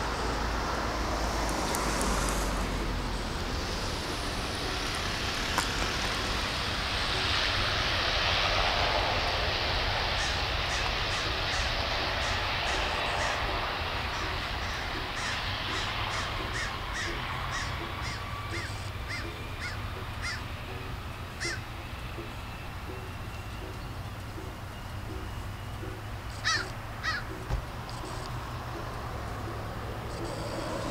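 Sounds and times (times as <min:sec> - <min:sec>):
turboprop plane rumble: 0:00.0 - 0:30.9
bird calling: 0:10.1 - 0:30.9.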